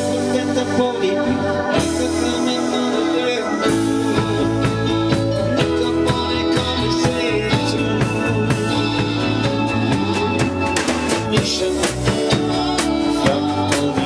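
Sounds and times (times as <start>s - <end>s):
rock band playing: 0.0s - 14.0s
drum hits and cymbals: 3.6s - 14.0s.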